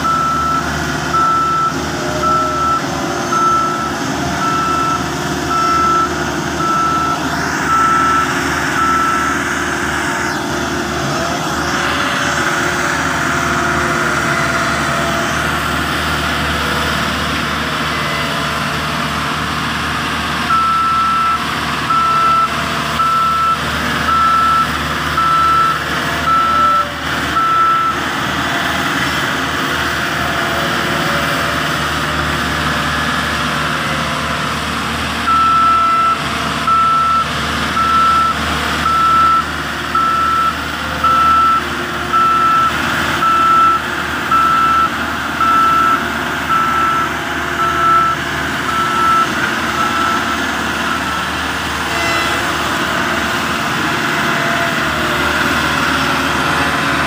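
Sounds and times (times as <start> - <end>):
reversing alarm beeping: 0.0 - 18.4, 20.4 - 28.1, 35.2 - 51.4
diesel engine running: 0.0 - 57.0.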